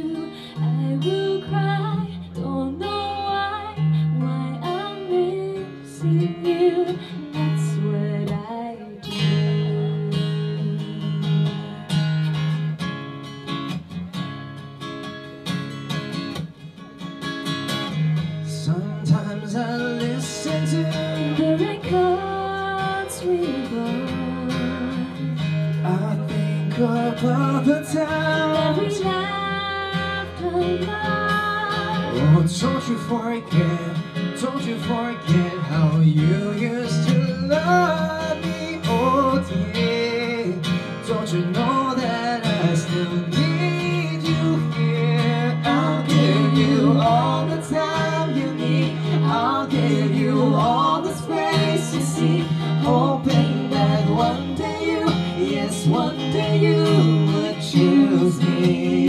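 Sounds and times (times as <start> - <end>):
woman singing: 0.0 - 11.4, 19.7 - 25.4, 27.9 - 33.0, 45.3 - 59.0
acoustic guitar: 0.0 - 59.0
man singing: 18.4 - 59.0.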